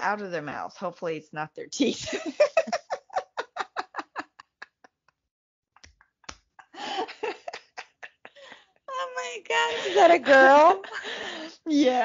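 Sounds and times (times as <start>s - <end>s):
woman laughing: 2.0s - 4.9s, 6.6s - 12.0s.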